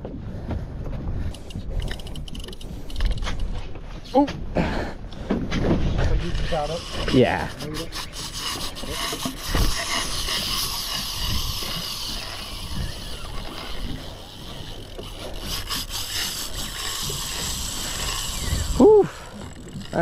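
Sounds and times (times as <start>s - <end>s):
fishing reel clicks: 1.3s - 3.2s, 6.4s - 20.0s
fishing rod rubbing: 1.4s - 4.2s, 6.1s - 20.0s
wind and sea hiss: 6.0s - 20.0s.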